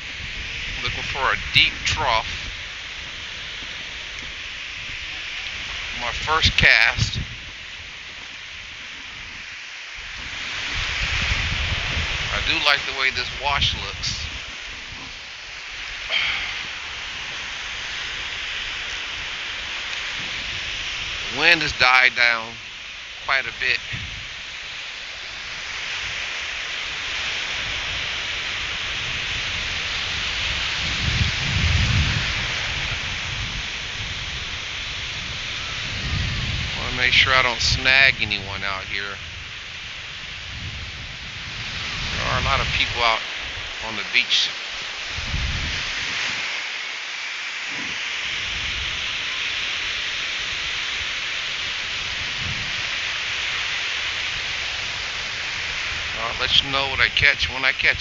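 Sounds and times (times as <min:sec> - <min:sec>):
ocean surf breaking: 0:00.0 - 0:58.0
faint low rumbles: 0:29.2 - 0:46.6.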